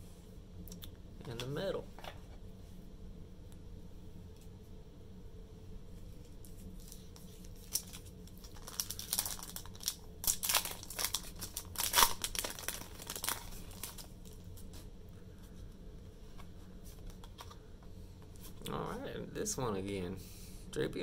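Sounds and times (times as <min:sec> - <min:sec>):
foil wrapper crackling: 0:06.8 - 0:14.7.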